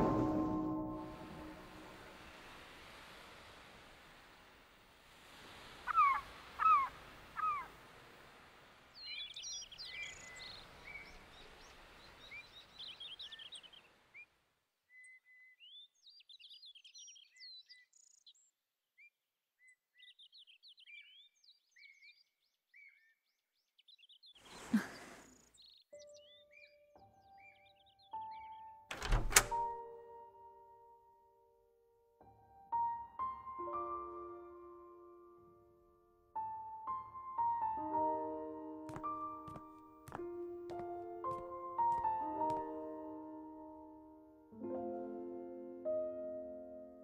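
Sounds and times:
soft steady hiss: 0.8 - 14.6
birds chirping: 5.8 - 7.8, 8.9 - 18.5, 19.6 - 29.6.

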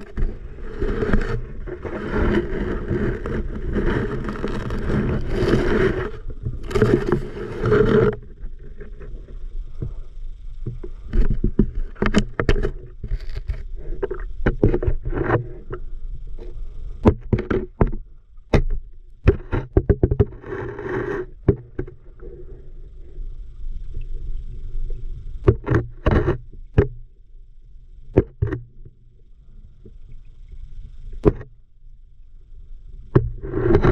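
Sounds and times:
sharp underwater knocks and clicks: 0.0 - 9.2, 10.6 - 15.8, 16.4 - 22.0, 25.4 - 27.1, 28.2 - 29.0, 31.2 - 31.6, 33.1 - 33.9
low rumble of river water: 0.0 - 33.9.

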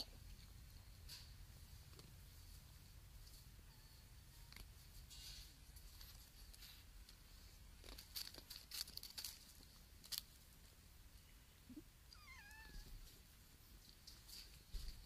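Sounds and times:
cat meowing: 12.1 - 13.0.

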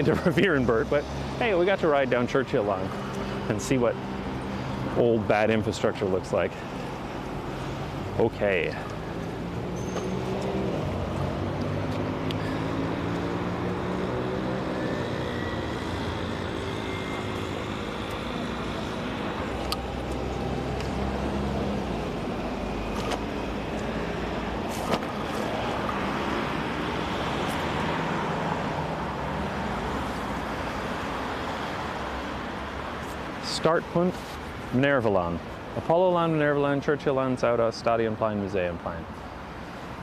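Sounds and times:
cars passing on street: 0.0 - 40.0
engine rising and falling in pitch: 8.9 - 30.2.

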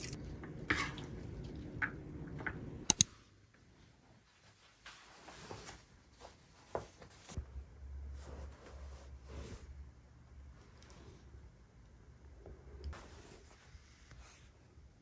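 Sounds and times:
sharp clicks: 2.9 - 3.1
clothing rustles: 4.2 - 7.4.

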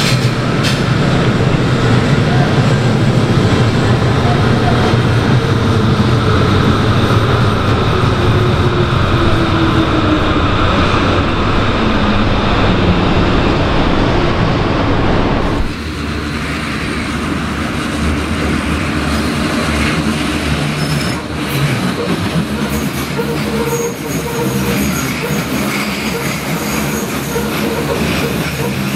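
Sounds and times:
electric train rumbling past: 0.0 - 28.9
train approaching on curve: 0.0 - 28.9
high wheel squeal: 20.6 - 28.9.

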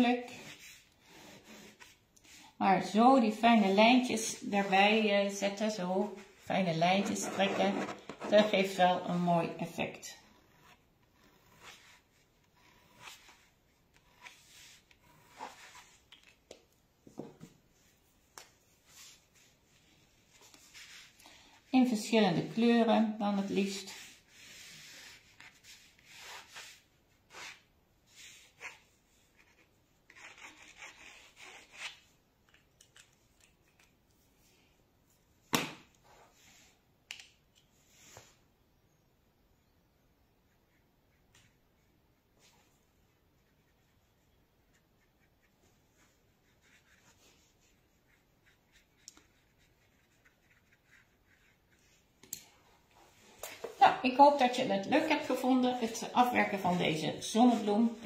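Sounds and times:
pen scratching on paper: 6.9 - 8.7, 10.4 - 16.0, 23.4 - 31.8, 43.4 - 52.0.

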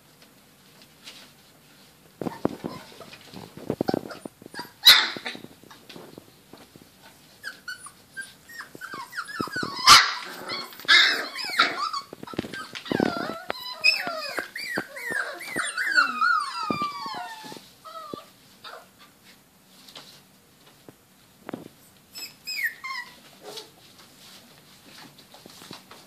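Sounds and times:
paws clicking and scrabbling: 0.2 - 18.3, 23.2 - 26.0
puppies yipping and squealing: 2.2 - 5.5, 7.3 - 19.0, 22.1 - 23.7
puppy growling: 2.2 - 5.8, 7.4 - 18.9
puppy barking: 4.6 - 5.4, 8.9 - 12.1.

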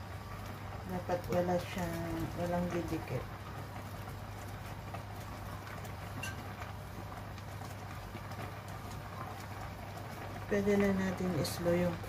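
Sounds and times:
broth bubbling in a pot: 0.0 - 12.0.

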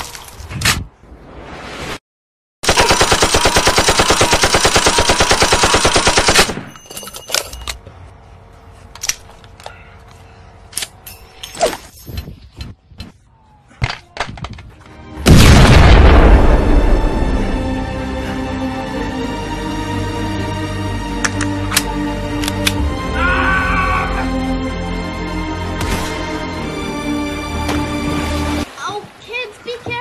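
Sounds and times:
machine-gun burst: 2.6 - 6.7
music: 14.6 - 28.7.

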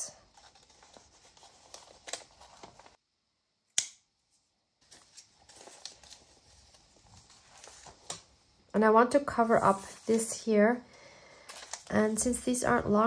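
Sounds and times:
paper rustling: 0.2 - 3.0, 4.8 - 8.4, 9.4 - 10.4, 11.4 - 12.4.

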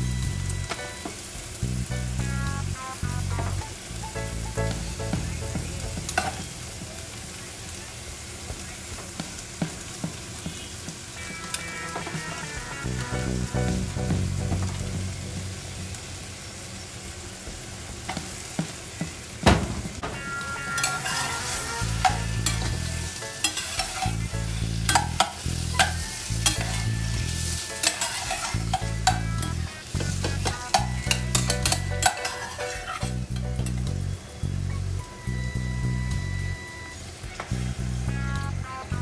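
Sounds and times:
food sizzling in saucepan: 0.0 - 39.0
spoon scraping and clinking pot: 20.8 - 21.4, 23.4 - 24.2, 24.9 - 26.9, 27.8 - 29.6, 30.7 - 33.8.

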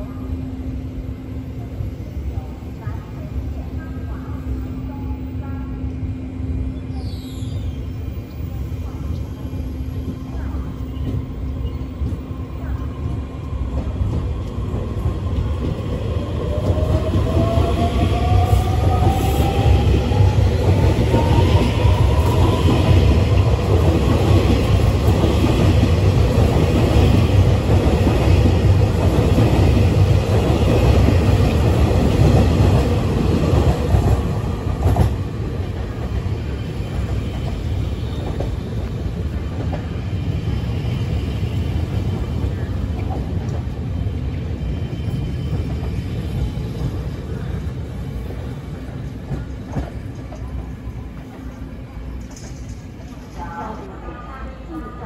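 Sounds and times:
train wheels rumbling on rails: 0.0 - 54.2.

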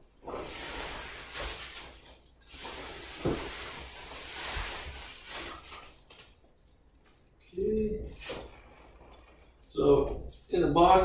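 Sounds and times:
bubble wrap and cardboard rustling: 0.0 - 6.2.

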